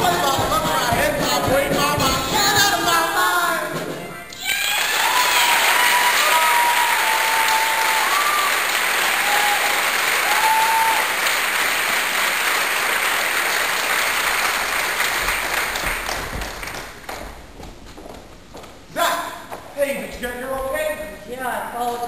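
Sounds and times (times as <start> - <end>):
audience applauding: 4.4 - 17.3.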